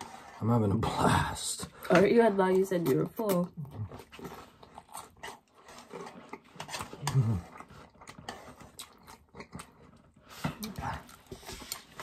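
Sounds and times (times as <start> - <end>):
close chewing mouth smacks: 2.7 - 12.0
low grunt: 7.0 - 7.5.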